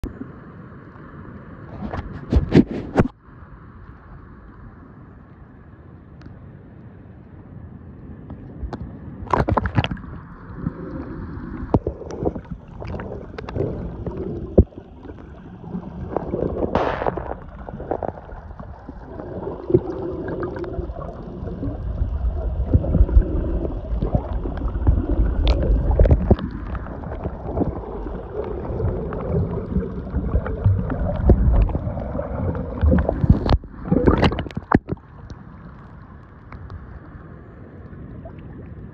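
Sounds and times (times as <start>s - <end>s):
muffled water sloshing and gurgling: 8.2s - 38.9s.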